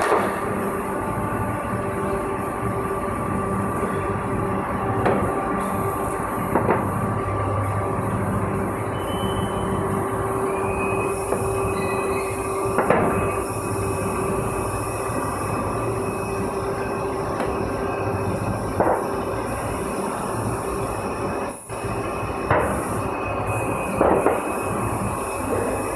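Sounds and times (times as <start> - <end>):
molding machine droning: 0.0 - 25.9.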